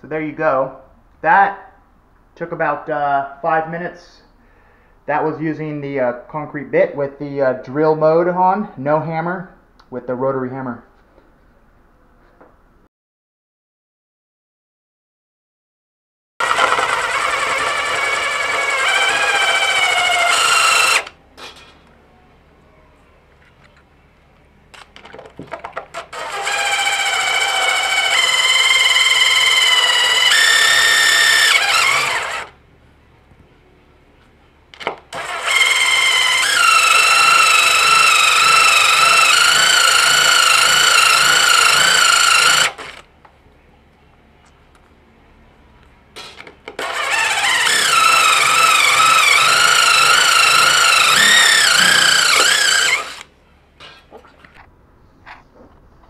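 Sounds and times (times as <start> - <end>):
impact driver grinding tile: 16.4 - 21.8, 24.8 - 32.6, 34.8 - 43.0, 46.2 - 54.0.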